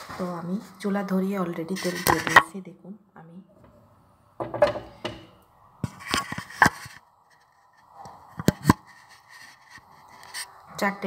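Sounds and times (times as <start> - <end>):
phone being handled knocks: 4.4 - 5.3.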